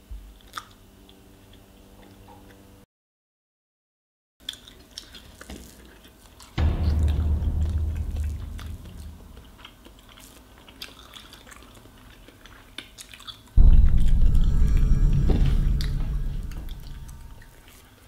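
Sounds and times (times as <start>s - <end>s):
chewing pancakes: 0.3s - 2.6s, 4.4s - 6.6s, 10.0s - 13.6s
deep low rumble: 6.6s - 9.7s, 13.6s - 17.7s
loud low sound: 6.6s - 9.7s, 13.6s - 17.7s.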